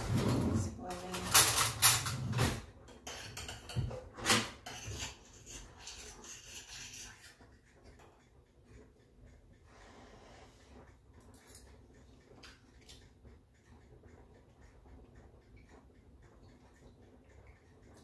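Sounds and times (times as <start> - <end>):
cooking pot and utensils clattering: 0.0 - 8.2.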